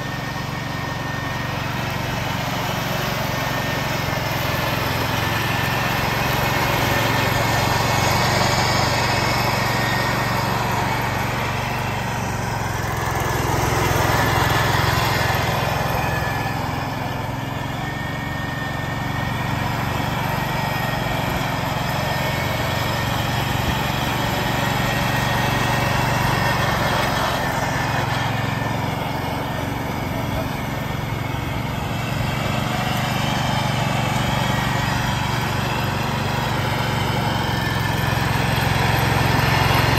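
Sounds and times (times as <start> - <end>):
garden tractor engine running: 0.0 - 39.9
mower deck mulching leaves: 0.0 - 39.9.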